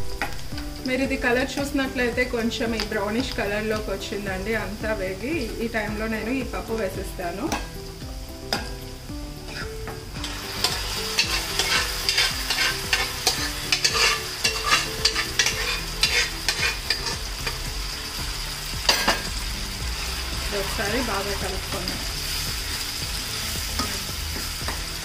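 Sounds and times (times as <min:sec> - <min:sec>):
food sizzling in oil: 0:00.0 - 0:25.0
spoon scraping pan: 0:09.4 - 0:17.6.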